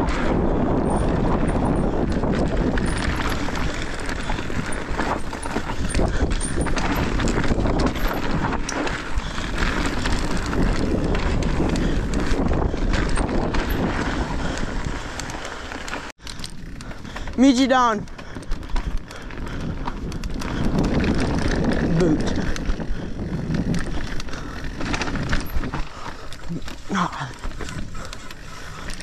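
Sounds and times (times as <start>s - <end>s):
wind on microphone: 0.0s - 15.4s, 16.4s - 29.0s
bike rattling over bumps: 0.0s - 29.0s
bike tyres rolling over dirt: 0.0s - 29.0s.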